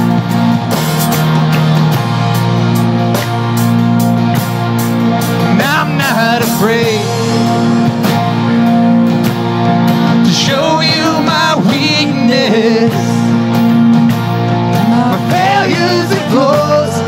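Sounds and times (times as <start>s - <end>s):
acoustic guitar: 0.0s - 17.0s
bass guitar: 0.0s - 17.0s
drum kit: 0.0s - 17.0s
person singing: 5.4s - 8.0s, 10.2s - 13.3s, 14.8s - 17.0s.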